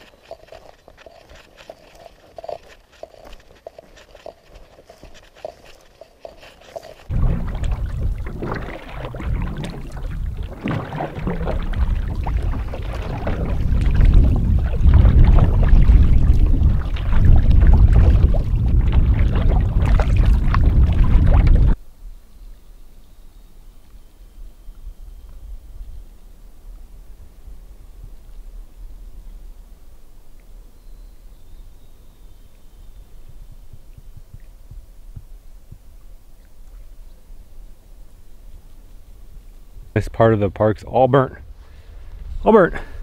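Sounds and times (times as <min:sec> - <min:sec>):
water splashing against a canoe: 0:00.0 - 0:21.8
wind on the microphone: 0:07.1 - 0:21.8, 0:32.4 - 0:37.5, 0:41.3 - 0:43.0.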